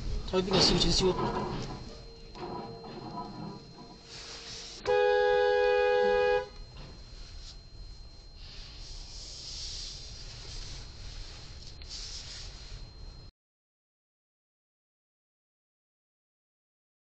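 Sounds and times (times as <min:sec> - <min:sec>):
road and engine noise: 0:00.0 - 0:13.0
car horn blast: 0:04.8 - 0:06.6.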